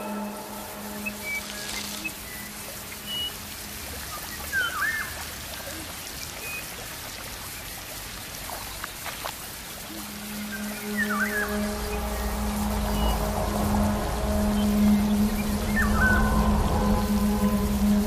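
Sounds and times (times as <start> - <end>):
background music: 0.0 - 4.4, 9.9 - 18.0
stream water trickling: 0.0 - 18.0.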